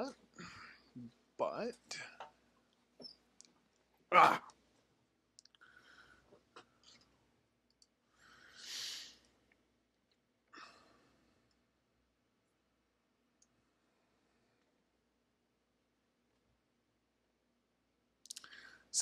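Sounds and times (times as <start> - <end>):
faint clicks: 18.2 - 18.6.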